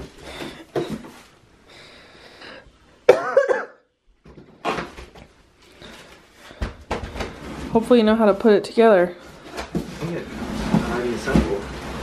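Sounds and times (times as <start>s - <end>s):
cardboard box rustling and scraping: 9.7s - 12.0s.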